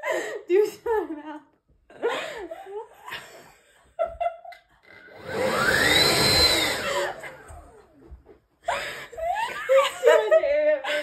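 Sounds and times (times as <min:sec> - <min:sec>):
electric fan motor whirring: 0:05.1 - 0:07.6
rising and falling whine: 0:05.2 - 0:07.6.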